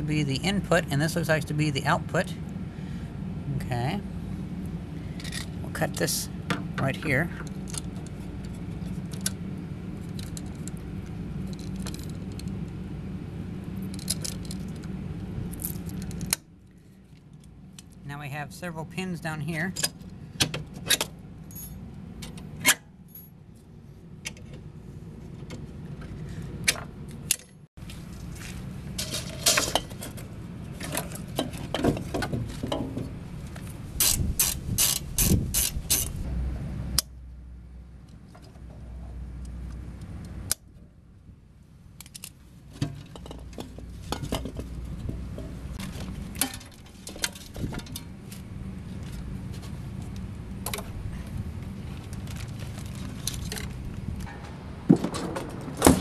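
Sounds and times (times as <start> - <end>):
clicks and scrapes of parts: 5.1 - 5.6, 13.8 - 14.9, 29.0 - 36.3, 42.0 - 56.0.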